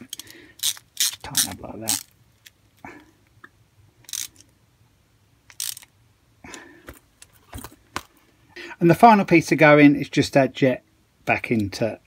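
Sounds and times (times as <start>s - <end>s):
hand ratchet clicking: 0.0s - 2.1s, 4.1s - 4.4s, 5.5s - 5.9s.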